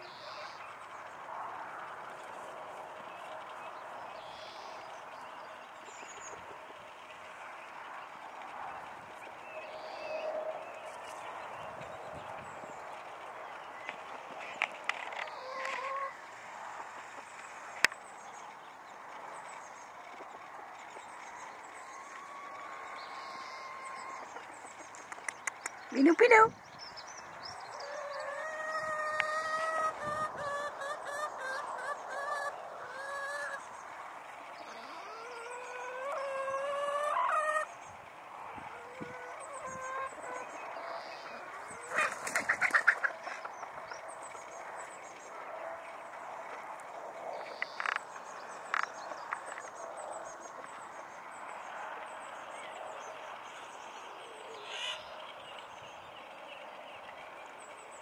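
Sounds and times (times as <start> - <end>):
small birds chirping: 0.0 - 58.0
poultry wavering cries: 15.3 - 16.2, 21.8 - 24.9, 27.7 - 33.8, 34.6 - 37.8, 38.4 - 43.8, 54.2 - 55.1.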